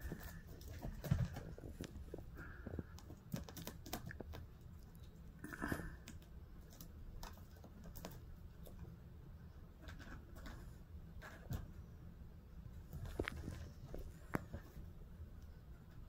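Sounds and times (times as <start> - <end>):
kitten claws scratching fabric: 0.0 - 4.8.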